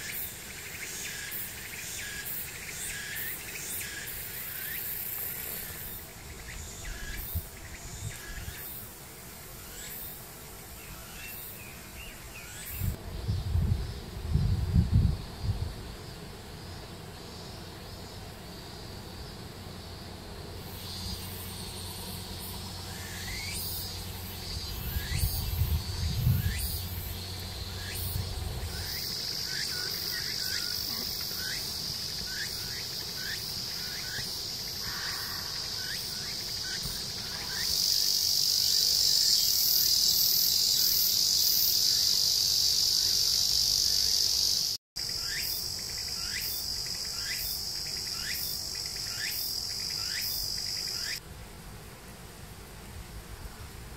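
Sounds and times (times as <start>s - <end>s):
insect chorus buzzing: 0.0s - 53.9s
wind rumble on microphone: 12.7s - 16.1s, 24.6s - 29.1s.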